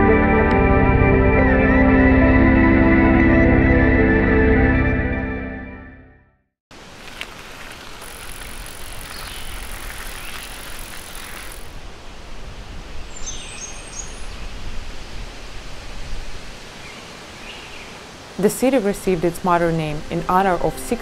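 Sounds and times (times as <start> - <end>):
bird chirping: 7.7 - 11.7, 13.1 - 14.5
wind rumble on microphone: 11.6 - 16.9.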